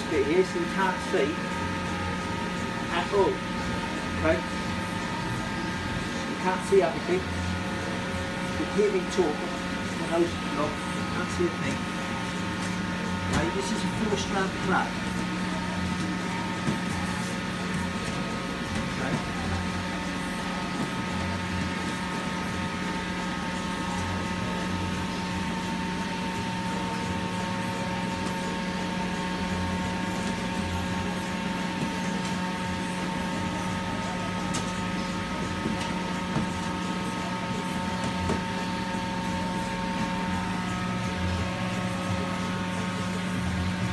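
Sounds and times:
kitchen machine hum: 0.0s - 43.9s.

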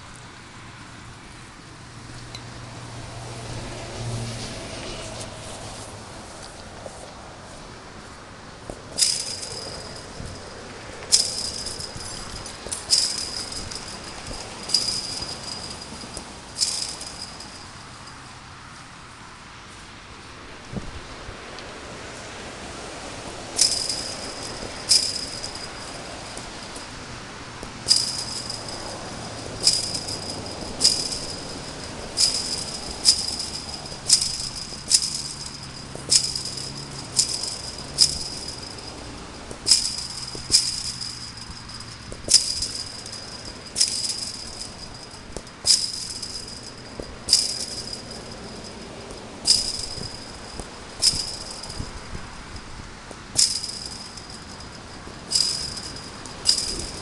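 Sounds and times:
wire mesh rattling: 8.7s - 18.3s, 23.4s - 57.0s.

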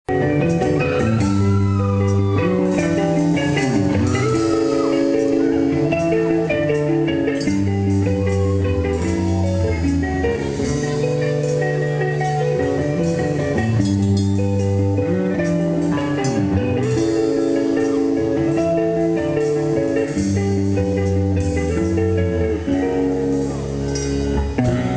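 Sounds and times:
metal band playing live: 0.0s - 24.9s.

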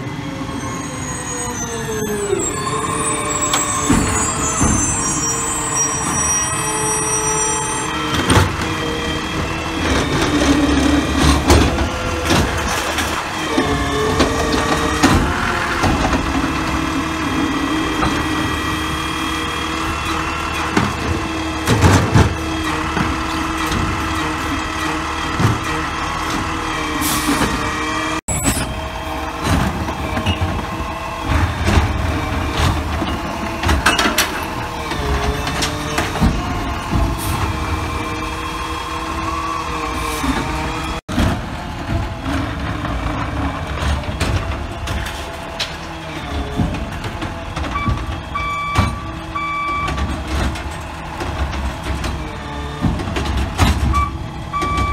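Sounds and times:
hydraulic whine: 0.0s - 41.0s
diesel engine running: 0.0s - 54.9s
knocks and clanks of cart: 8.1s - 27.8s, 28.4s - 39.2s, 40.2s - 54.9s.

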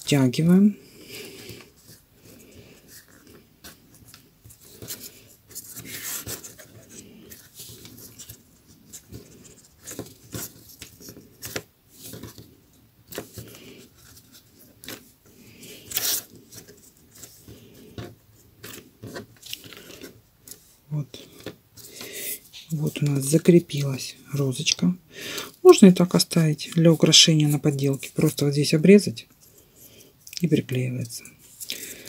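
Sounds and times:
newspaper rustling: 1.1s - 24.8s.

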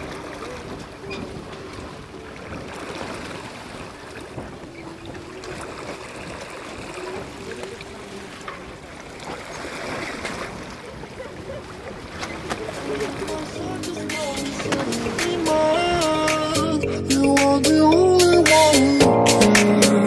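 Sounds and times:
water rushing past a boat: 0.0s - 20.0s.

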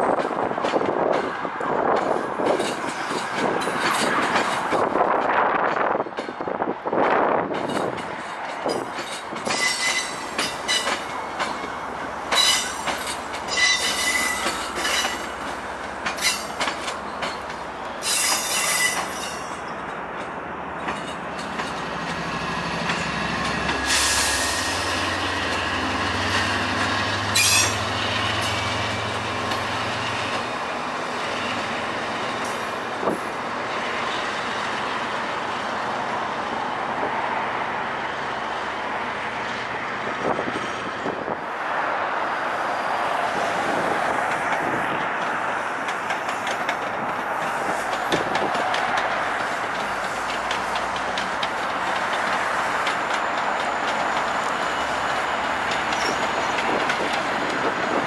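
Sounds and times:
diesel locomotive drone: 0.0s - 58.0s
train coaches rolling: 0.0s - 58.0s
train wheels squealing: 8.7s - 11.0s, 12.3s - 15.4s, 16.2s - 17.4s, 18.0s - 19.7s, 23.8s - 25.3s, 27.0s - 28.9s, 52.3s - 58.0s.

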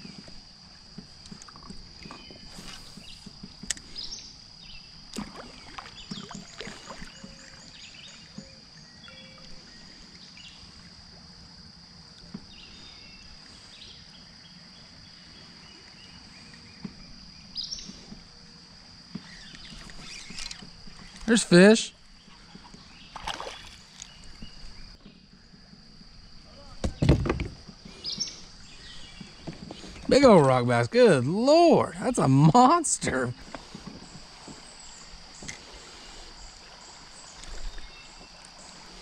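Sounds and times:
birds calling: 1.6s - 10.6s, 12.4s - 25.7s, 26.8s - 39.0s
gear knocking against kayak: 26.8s - 28.4s.

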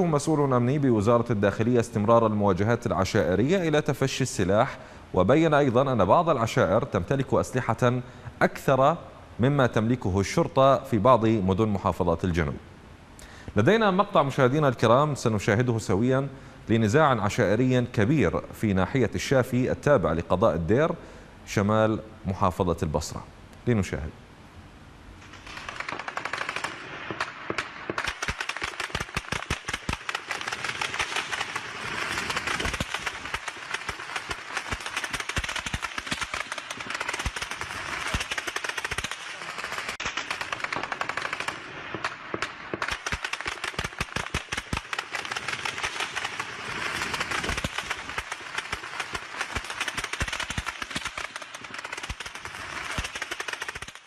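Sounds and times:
automatic gunfire: 25.4s - 54.0s.

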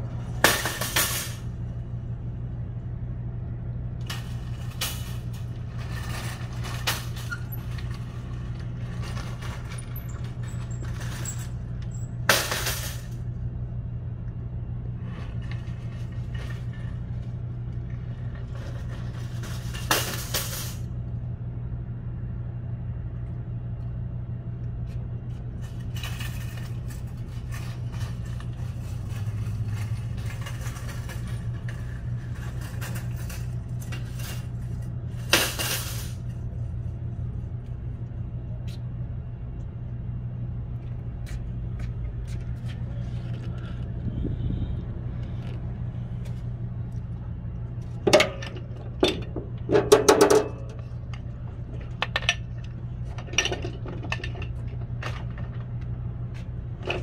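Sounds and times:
steady low hum: 0.0s - 57.0s
metal shopping carts clanking: 0.2s - 1.5s, 4.0s - 13.2s, 18.1s - 20.9s, 25.6s - 36.4s.

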